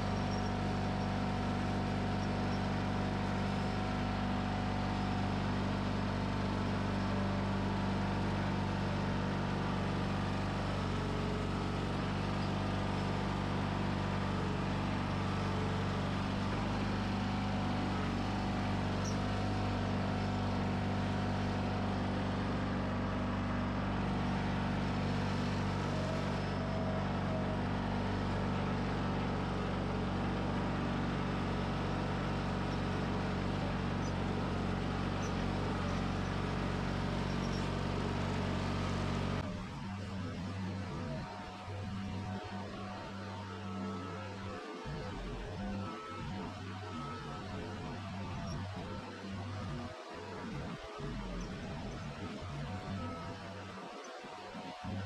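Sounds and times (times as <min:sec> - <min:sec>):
tractor engine running: 0:00.0 - 0:42.8.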